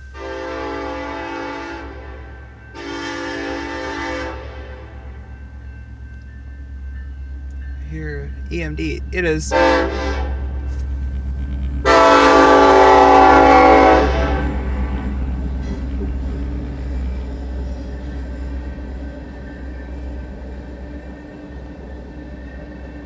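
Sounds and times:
locomotive air horn blast: 0.0 - 5.1, 9.5 - 10.9, 11.8 - 16.3
train cars rolling past: 0.0 - 23.0.

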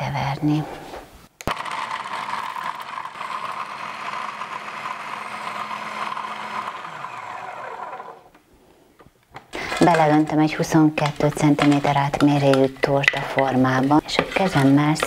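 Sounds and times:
food processor motor hum: 1.4 - 8.4.

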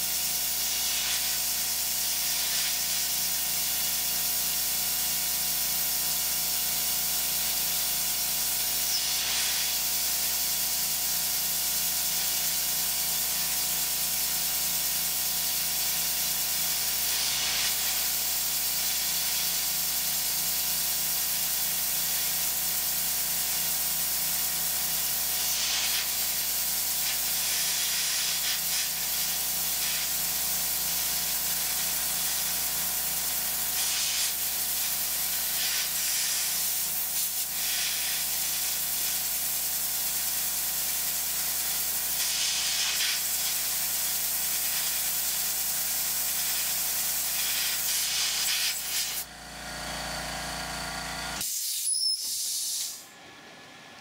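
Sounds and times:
air blast hissing: 0.0 - 3.9, 8.5 - 10.3, 15.0 - 19.5, 24.9 - 39.1, 46.3 - 49.2, 51.4 - 53.1.

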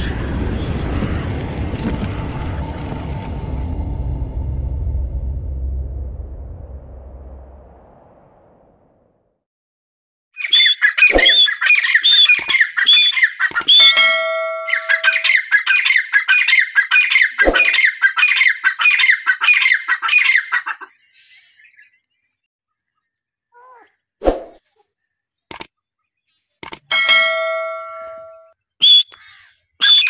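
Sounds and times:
francolin calling shrill notes: 10.4 - 15.9.

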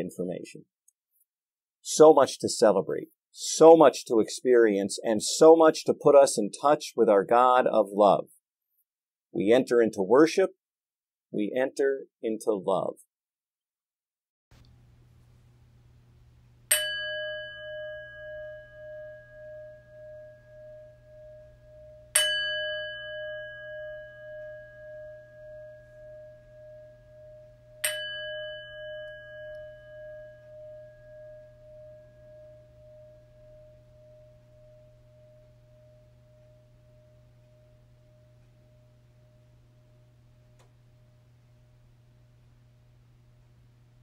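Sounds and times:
bell ringing with wavering hum: 16.7 - 41.9.

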